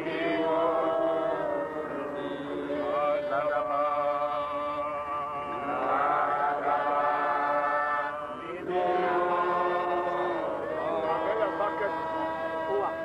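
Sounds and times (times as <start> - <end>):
voices chanting a prayer: 0.0 - 13.0.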